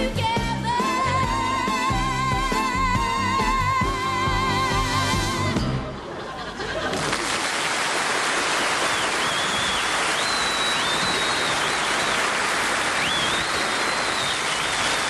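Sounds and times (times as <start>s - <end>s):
audience applauding: 6.8s - 15.0s
high whistles: 8.9s - 15.0s.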